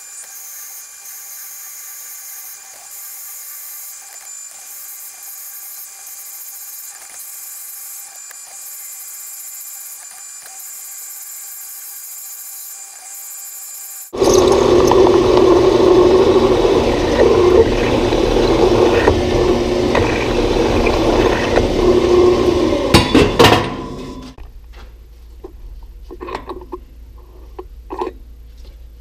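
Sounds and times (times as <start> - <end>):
metal lathe machining: 14.2 - 24.4
sharp knocks: 22.9 - 24.0.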